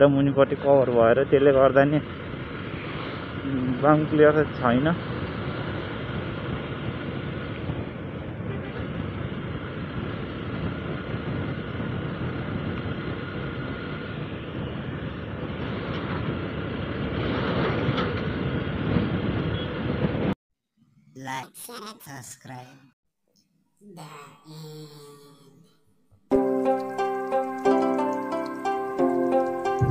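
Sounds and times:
wind rushing over microphone: 0:00.5 - 0:20.4.

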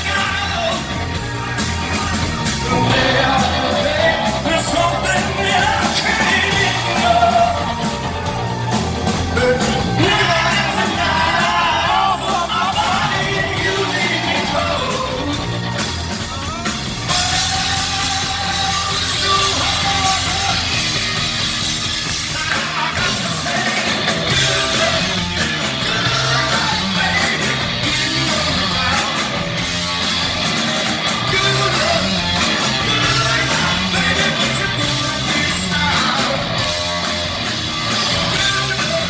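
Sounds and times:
man singing: 0:00.0 - 0:01.0, 0:02.6 - 0:07.7, 0:09.3 - 0:15.5, 0:17.1 - 0:21.0, 0:22.2 - 0:29.5, 0:31.2 - 0:36.8, 0:38.0 - 0:39.0
rock band playing: 0:00.0 - 0:39.0.

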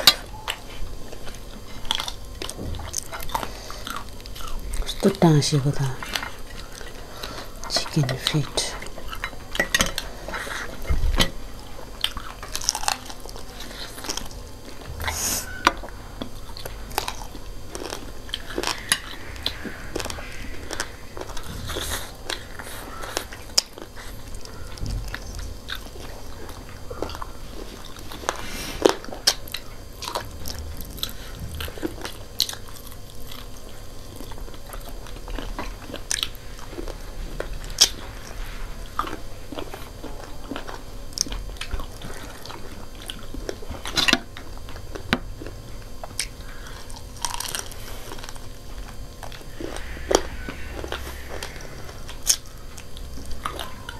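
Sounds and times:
people chewing and biting: 0:00.0 - 0:53.9
sharp food crunches: 0:12.0 - 0:53.9.

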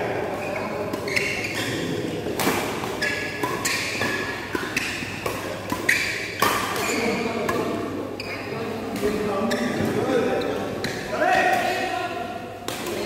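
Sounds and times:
shoes squeaking on court: 0:00.4 - 0:02.0, 0:02.7 - 0:07.6, 0:08.2 - 0:08.6, 0:09.3 - 0:11.1
rackets hitting shuttlecock: 0:00.9 - 0:07.8, 0:12.6 - 0:13.0.

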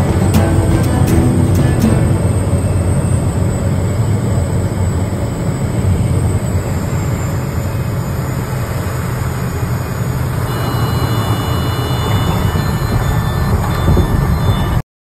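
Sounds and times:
faint high whine: 0:00.0 - 0:14.8
aircraft engine and propeller drone: 0:02.1 - 0:13.7.

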